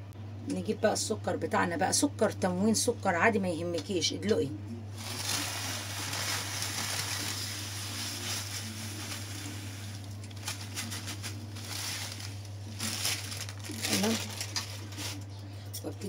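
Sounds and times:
sugar pouring: 0:05.0 - 0:14.6
rustles and clicks: 0:05.0 - 0:15.3.

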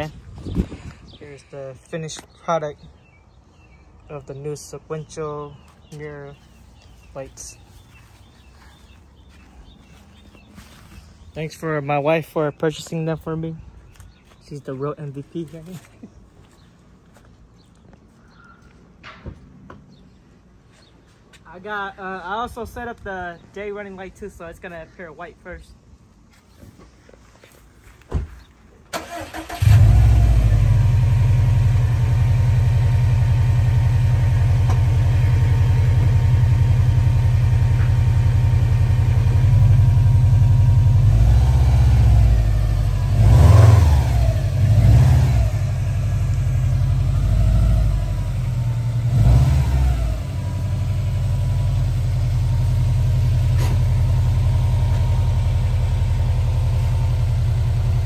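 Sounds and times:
car engine starting and idling: 0:28.9 - 0:58.0
engine revving: 0:29.0 - 0:58.0.

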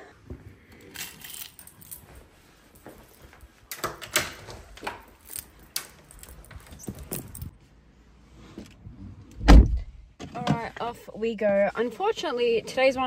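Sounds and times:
keys jingling: 0:00.8 - 0:07.5
front door unlocking and opening: 0:03.7 - 0:07.5.

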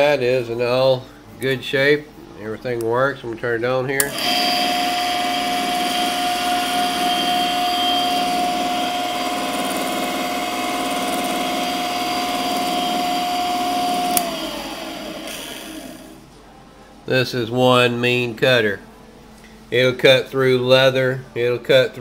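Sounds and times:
electric motor whine: 0:04.0 - 0:16.3.

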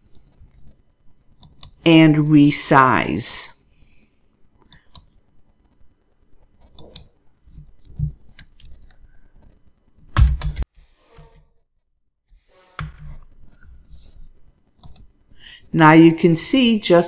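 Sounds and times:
computer mouse clicks: 0:01.4 - 0:01.8, 0:04.6 - 0:05.8, 0:06.5 - 0:07.1, 0:14.8 - 0:15.1.

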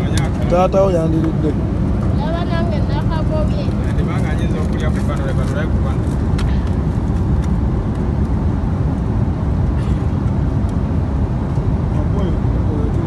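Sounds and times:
airliner engine rumble: 0:00.0 - 0:13.0.

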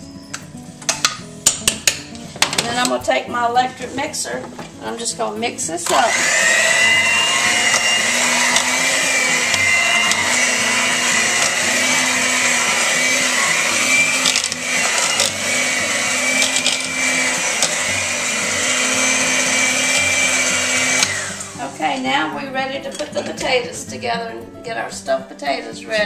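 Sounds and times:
electric hand mixer whining: 0:05.9 - 0:22.4.

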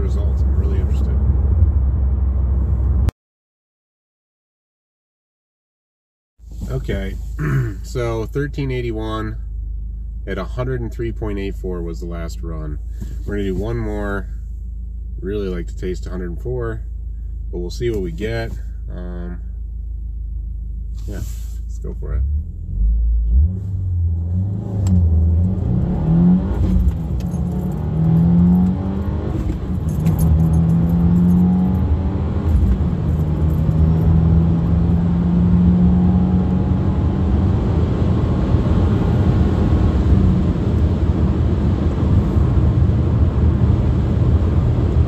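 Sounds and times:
wind and road noise: 0:00.0 - 0:03.1, 0:23.3 - 0:45.0
car engine revving through upshifts: 0:22.6 - 0:45.0.

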